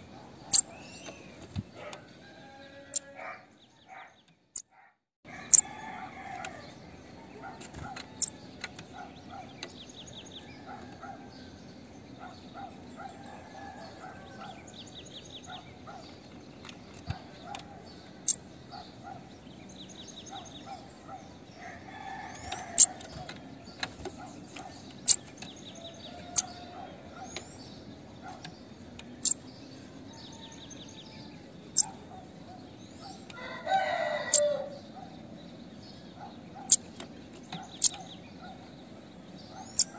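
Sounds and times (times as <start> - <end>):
bird chips: 0.2 - 2.1, 39.5 - 39.9.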